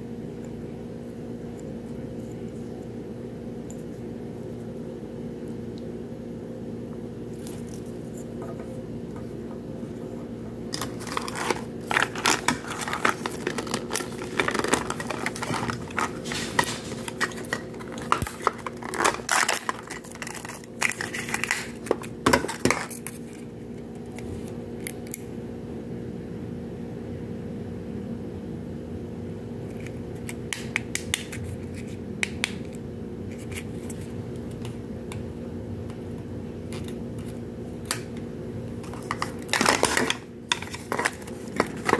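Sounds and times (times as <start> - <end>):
steady low hum: 0.0 - 41.9
plastic wrappers crinkling: 10.7 - 23.4, 38.8 - 41.9.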